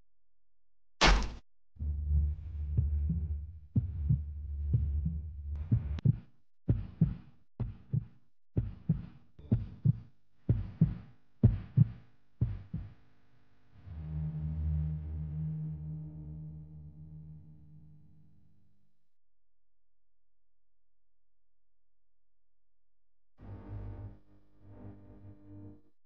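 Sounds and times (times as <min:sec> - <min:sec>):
heartbeat thumps: 0:02.1 - 0:13.0.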